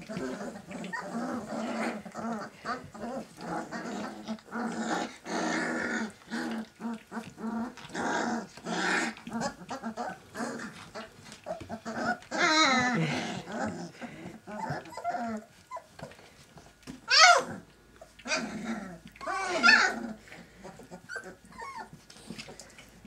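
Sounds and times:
puppy crying: 0:00.0 - 0:05.0, 0:08.7 - 0:13.9, 0:14.5 - 0:16.0, 0:17.1 - 0:22.0
puppies growling and squeaking: 0:00.0 - 0:23.0.

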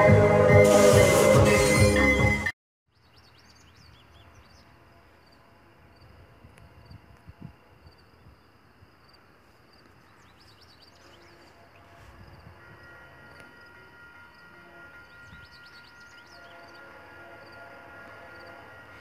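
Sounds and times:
birds chirping: 0:14.8 - 0:17.3.

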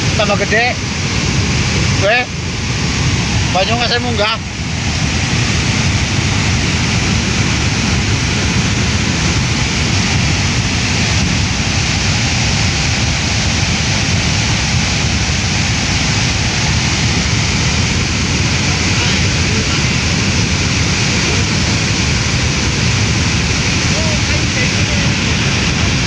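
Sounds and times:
deep rumble: 0:00.0 - 0:26.0
rushing turbulent floodwater: 0:00.0 - 0:26.0.

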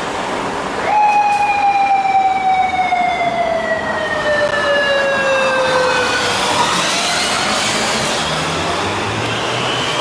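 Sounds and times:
street traffic noise: 0:00.0 - 0:10.0
motorcycle siren wail: 0:00.8 - 0:07.4.

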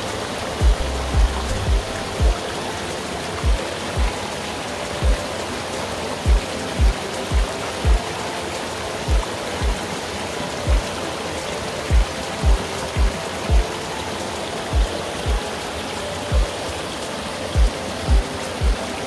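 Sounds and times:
stream rushing: 0:00.0 - 0:19.0
music with kick-drum beat: 0:00.6 - 0:02.4, 0:03.4 - 0:04.1, 0:06.3 - 0:08.0, 0:09.1 - 0:09.8, 0:11.9 - 0:13.6, 0:14.8 - 0:15.4, 0:17.6 - 0:18.8.

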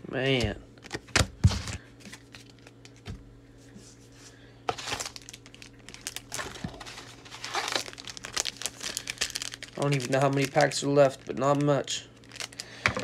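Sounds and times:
foil wrapper crinkling: 0:01.7 - 0:03.0, 0:04.7 - 0:13.0.

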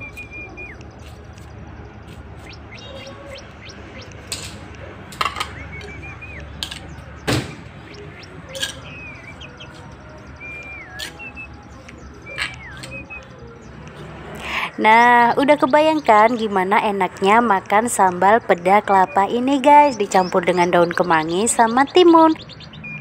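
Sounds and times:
bird whistling calls: 0:00.0 - 0:01.2, 0:02.0 - 0:04.3, 0:05.4 - 0:13.7.

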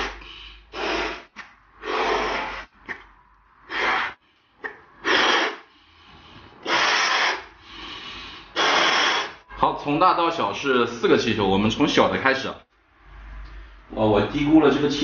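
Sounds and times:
man blowing up balloons: 0:00.0 - 0:09.4.

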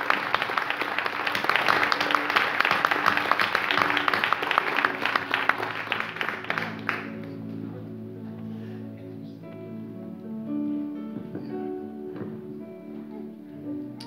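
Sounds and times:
crowd applauding: 0:00.0 - 0:07.6.

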